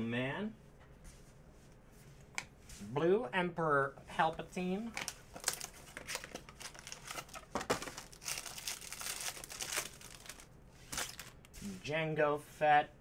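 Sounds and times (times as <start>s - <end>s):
foil wrapper crinkling and tearing: 5.0s - 11.4s.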